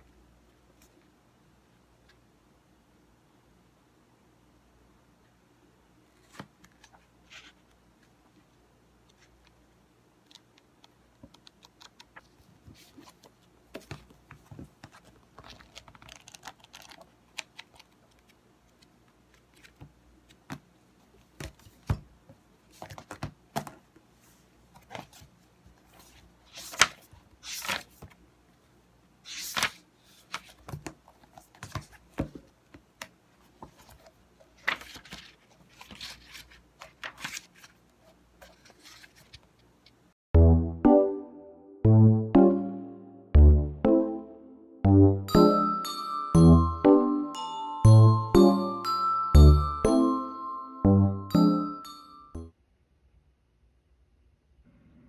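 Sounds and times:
pages flipping: 6.1 - 8.1, 10.3 - 20.6, 22.7 - 23.8, 24.7 - 28.2, 29.2 - 32.4, 33.0 - 40.0.

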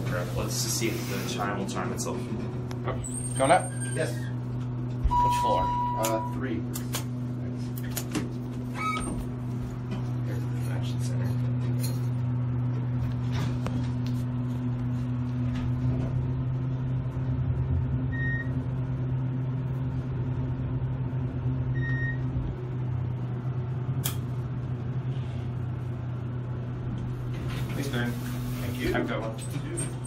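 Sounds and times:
elevator drive humming: 0.0 - 30.0
short high beeps: 5.1 - 6.4
sharp click: 24.0 - 24.3.

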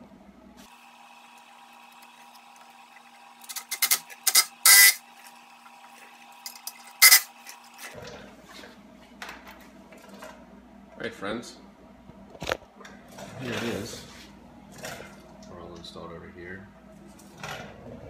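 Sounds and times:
metallic clicks and scrapes: 3.4 - 5.0.

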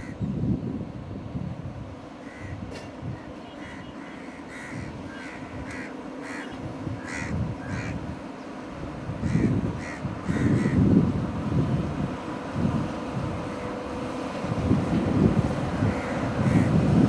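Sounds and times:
low rumbling noise: 0.0 - 17.0
crows cawing: 3.6 - 8.0, 9.2 - 10.8.

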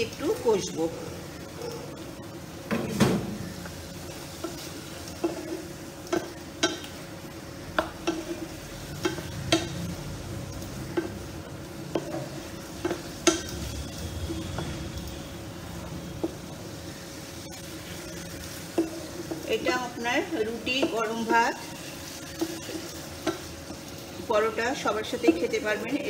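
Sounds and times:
gravy sizzling in a pan: 0.0 - 26.0
spatula scraping a pan: 17.5 - 24.0.

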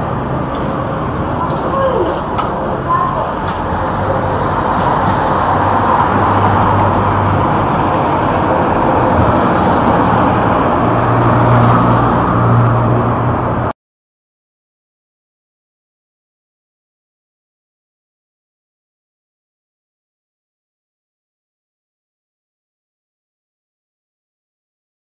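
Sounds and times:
street traffic noise: 0.0 - 13.8.

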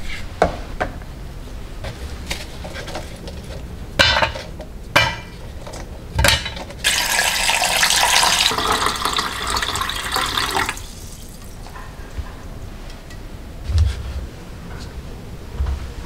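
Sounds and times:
water pouring into a pot: 6.8 - 11.6.

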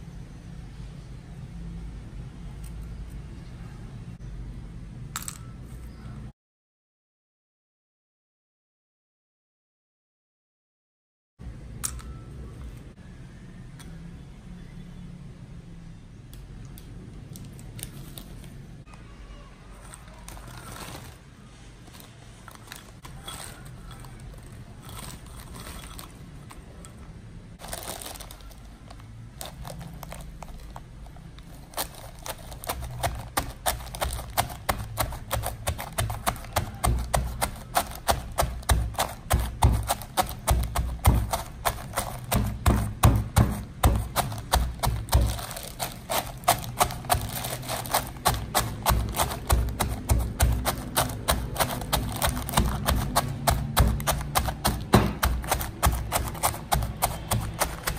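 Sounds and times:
plastic bag rustling: 19.8 - 26.8, 27.6 - 57.9
pestle pounding in stone mortar: 31.8 - 57.9.

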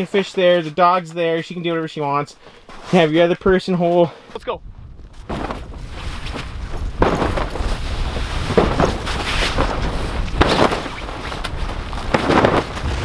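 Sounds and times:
wind on microphone: 4.6 - 13.0.

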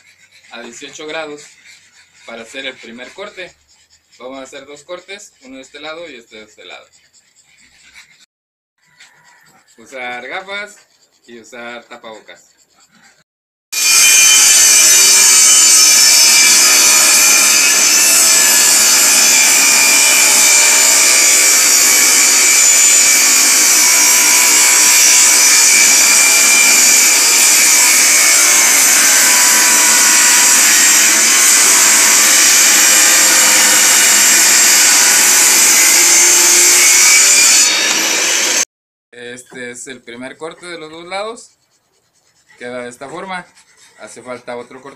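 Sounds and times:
table saw cutting wood: 13.7 - 38.7.

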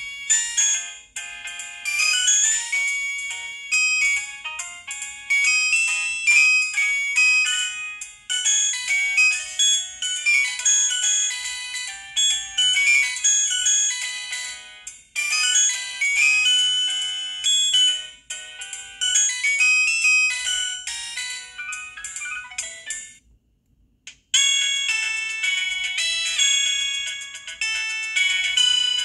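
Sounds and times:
polyphonic phone ringtone: 0.0 - 23.2, 24.4 - 29.0.

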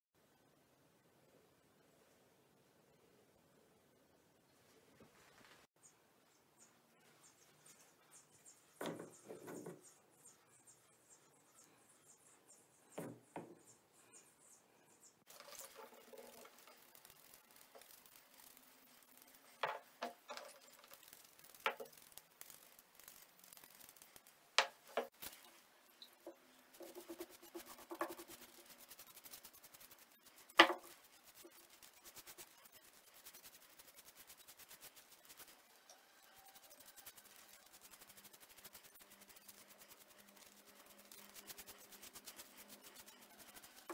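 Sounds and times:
sponge and brush rubbing wood: 15.3 - 43.9
wooden blocks knocking on workbench: 30.6 - 30.8.

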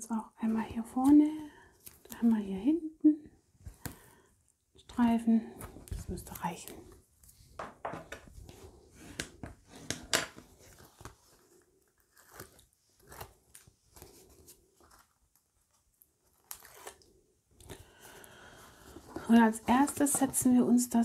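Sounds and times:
cardstock and tape crackling: 5.5 - 7.4, 10.4 - 17.0, 18.8 - 20.6.

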